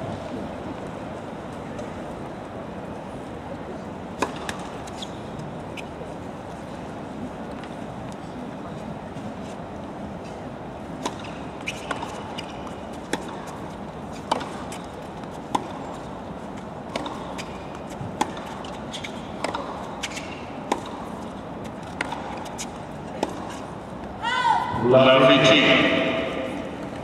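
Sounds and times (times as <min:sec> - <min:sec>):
steady background noise: 0:00.0 - 0:27.0
racket hitting ball: 0:04.2 - 0:04.7, 0:11.0 - 0:12.3, 0:14.2 - 0:14.9, 0:15.5 - 0:15.9, 0:16.8 - 0:23.6
ball bouncing on court: 0:14.2 - 0:14.8, 0:16.9 - 0:18.8, 0:19.4 - 0:21.1, 0:21.9 - 0:22.4.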